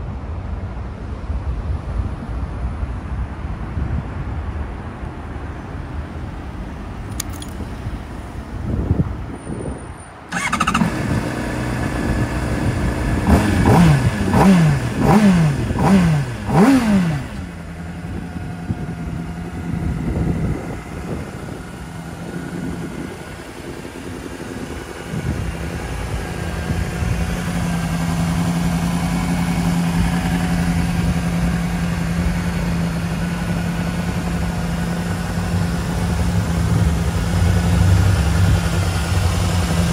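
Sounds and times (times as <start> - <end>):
motorcycle engine revving and idling: 10.3 - 39.9.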